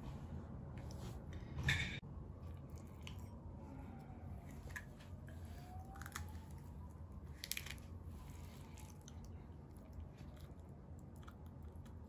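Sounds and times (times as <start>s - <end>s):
low steady hum: 0.0s - 12.0s
crisp shells crunching: 7.3s - 7.9s.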